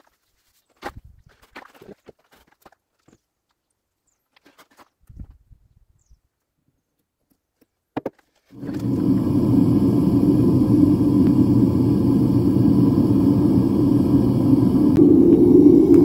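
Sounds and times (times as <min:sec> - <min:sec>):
furnace burner roaring: 0:08.5 - 0:16.0.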